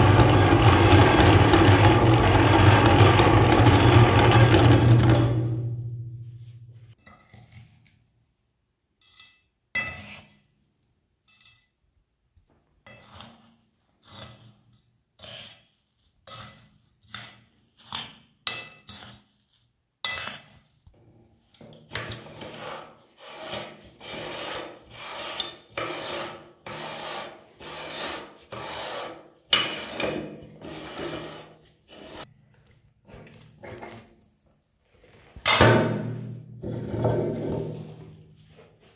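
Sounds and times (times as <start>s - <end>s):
spoon scraping plastic plate: 21.5s - 32.3s.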